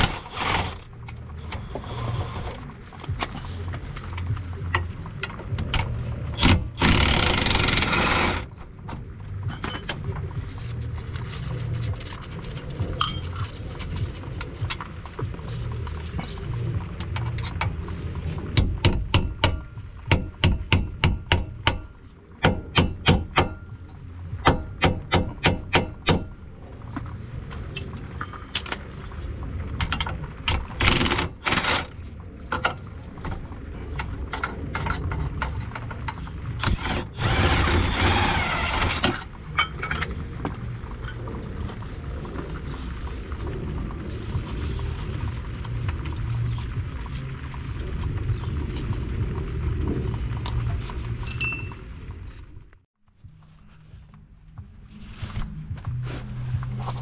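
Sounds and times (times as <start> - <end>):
hammer striking steel: 24.4 - 26.3.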